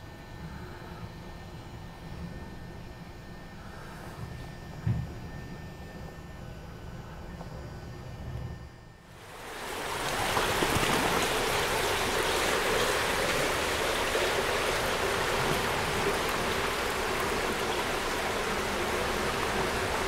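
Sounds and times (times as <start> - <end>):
running water rushing: 9.2 - 20.0.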